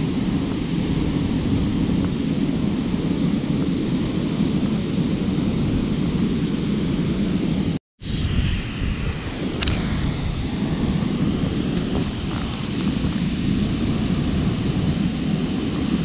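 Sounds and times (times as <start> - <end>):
water roaring over a dam: 8.8 - 16.0.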